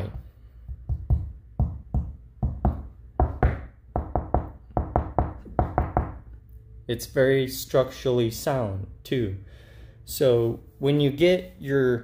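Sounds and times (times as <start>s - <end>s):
knuckles knocking on drywall: 0.6s - 6.2s.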